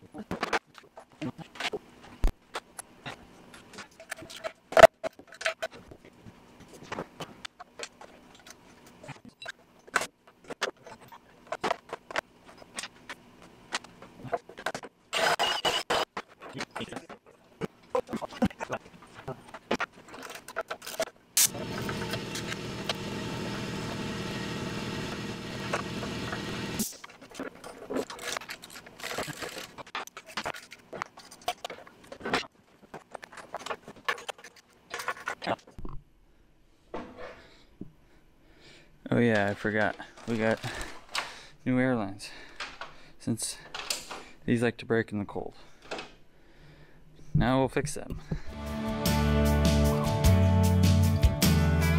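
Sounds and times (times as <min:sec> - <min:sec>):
steady mechanical hum: 0:05.5 - 0:33.9.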